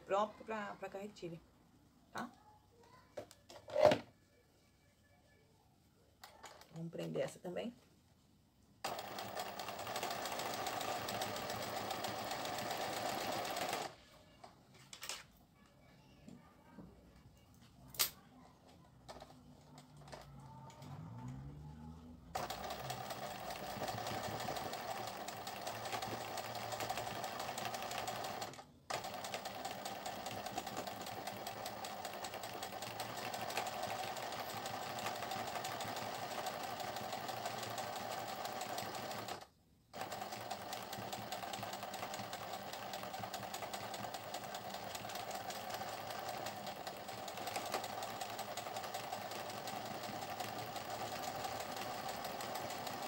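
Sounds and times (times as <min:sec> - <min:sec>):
sewing machine running: 0:08.8 - 0:14.0, 0:22.3 - 0:53.0.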